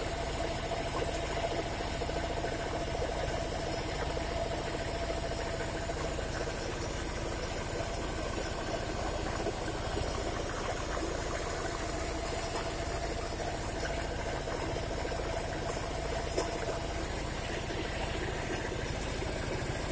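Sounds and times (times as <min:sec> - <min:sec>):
engine-driven grinding mill: 0:00.0 - 0:19.9.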